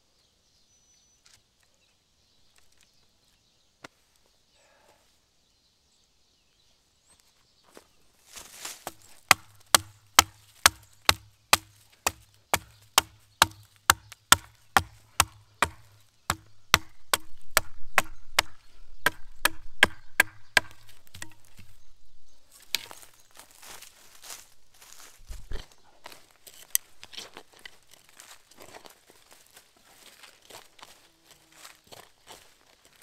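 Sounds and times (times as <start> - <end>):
wood being chopped: 8.8 - 21.7.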